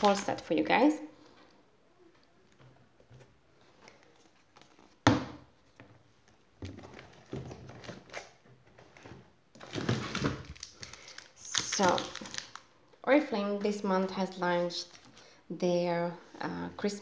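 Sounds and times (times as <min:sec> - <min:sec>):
wrapping rustling: 0:00.0 - 0:00.6, 0:09.6 - 0:12.7.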